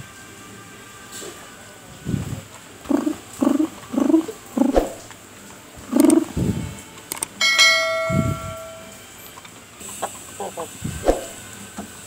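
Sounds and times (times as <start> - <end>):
roosters clucking: 2.1 - 6.8, 9.3 - 11.4
ringing bell ding: 7.4 - 9.2.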